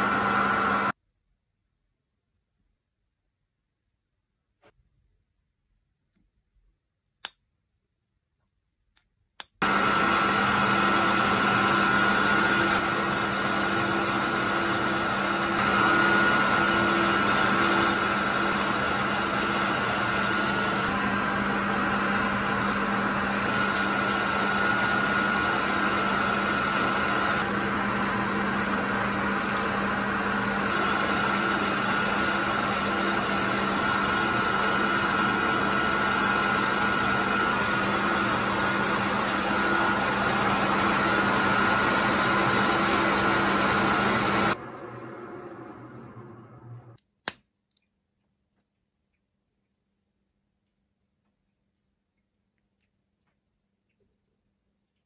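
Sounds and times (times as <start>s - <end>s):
metal lathe humming: 9.6s - 44.6s.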